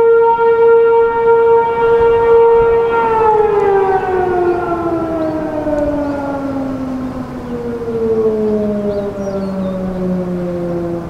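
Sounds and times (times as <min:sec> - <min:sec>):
distant warning siren winding down: 0:00.0 - 0:11.0.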